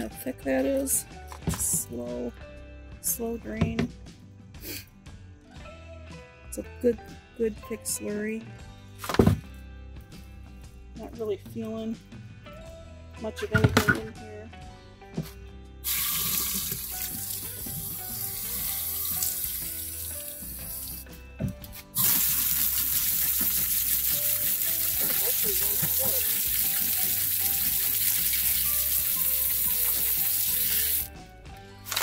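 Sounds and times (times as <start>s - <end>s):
spray nozzle spraying water on stones: 15.9s - 21.0s, 22.0s - 31.1s.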